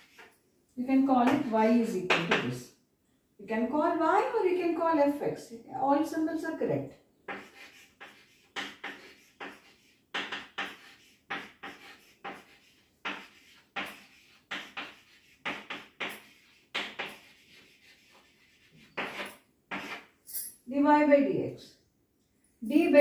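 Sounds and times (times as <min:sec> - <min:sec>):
chalk writing on blackboard: 0:00.0 - 0:00.4, 0:07.3 - 0:20.2.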